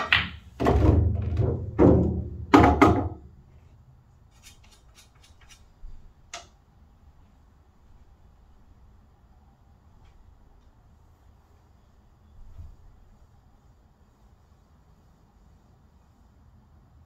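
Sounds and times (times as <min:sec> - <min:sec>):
pool balls knocking: 0:00.0 - 0:03.3
low rolling rumble of balls: 0:00.0 - 0:03.5.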